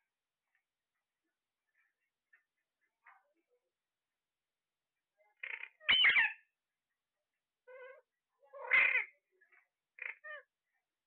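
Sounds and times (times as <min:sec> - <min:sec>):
parrots calling: 0:05.4 - 0:06.4, 0:08.6 - 0:09.1, 0:10.0 - 0:10.5.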